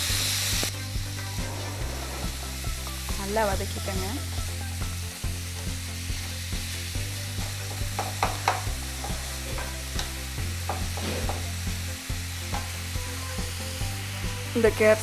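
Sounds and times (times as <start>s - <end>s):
vegetables sizzling in oil: 0.0s - 15.0s
spatula scraping and knocking pan: 7.4s - 11.6s, 12.5s - 12.8s.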